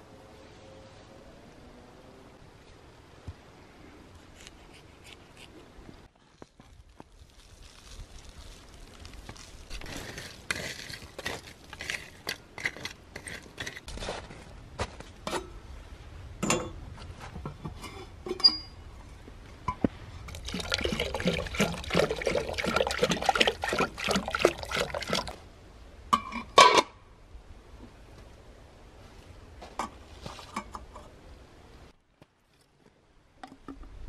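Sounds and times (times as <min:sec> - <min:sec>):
shovel scraping through ash: 0:09.2 - 0:14.4
charcoal pouring into metal vessel: 0:20.3 - 0:25.4.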